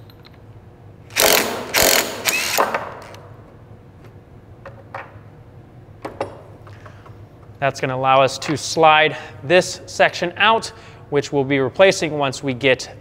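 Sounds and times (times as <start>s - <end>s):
impact wrench rattling: 1.1s - 3.2s.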